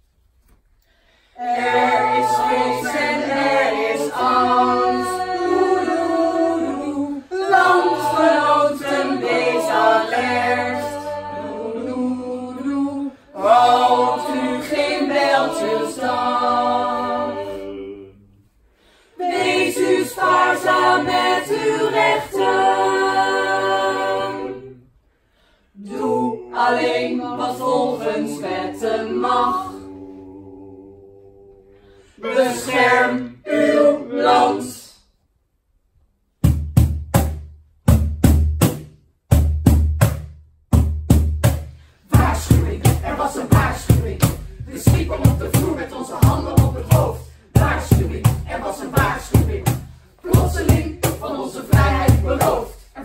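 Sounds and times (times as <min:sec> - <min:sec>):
mixed choir singing: 0:01.3 - 0:18.4, 0:19.1 - 0:24.9, 0:25.8 - 0:35.0, 0:42.0 - 0:53.0.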